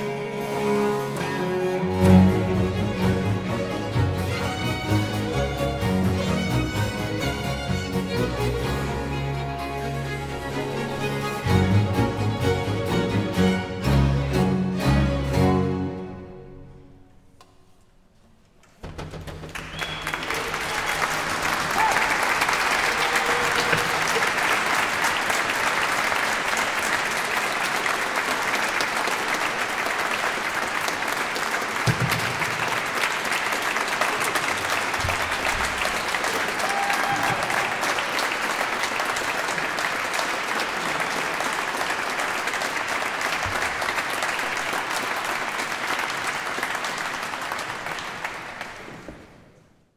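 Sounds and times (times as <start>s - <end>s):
audience applauding: 19.3s - 49.5s.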